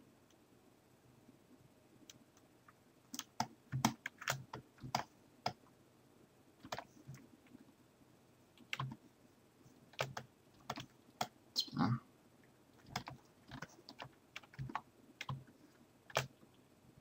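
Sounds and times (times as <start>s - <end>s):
keyboard keystrokes: 16.1s - 16.3s.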